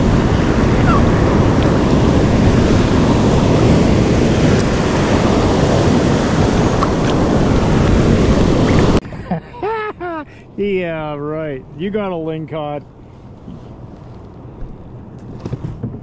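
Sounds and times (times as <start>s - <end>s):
wind buffeting microphone: 0.0s - 9.1s
ocean surf rushing: 0.0s - 12.2s.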